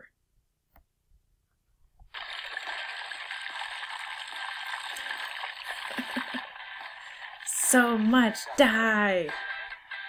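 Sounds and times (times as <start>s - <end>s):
liquid splashing into plastic container: 2.1s - 8.6s.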